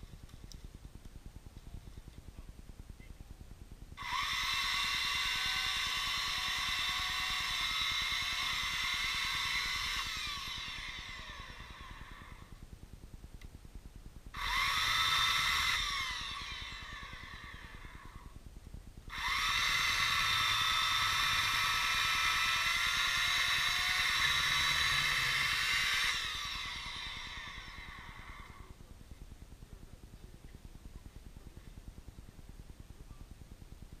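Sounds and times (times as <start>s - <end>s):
saw cutting wood: 4.0s - 12.4s, 14.4s - 18.0s, 19.1s - 28.6s
electric saw motor whining: 4.0s - 12.6s, 14.4s - 18.4s, 19.1s - 28.8s.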